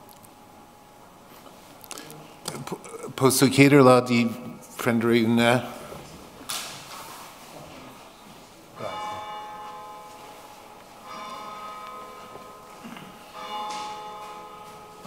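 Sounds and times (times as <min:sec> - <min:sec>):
bell tolling: 0:08.8 - 0:15.0.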